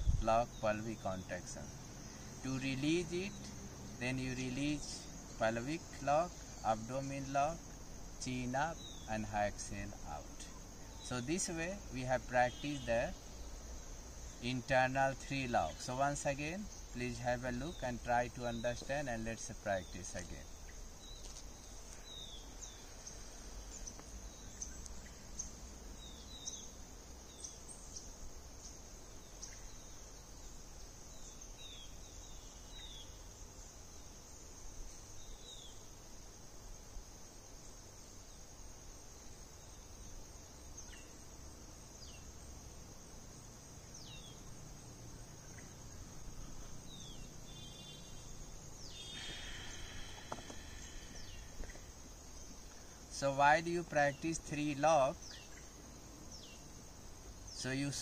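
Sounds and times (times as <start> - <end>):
crickets droning: 0.0 - 58.0
bird chirps: 45.2 - 52.9, 53.5 - 56.7.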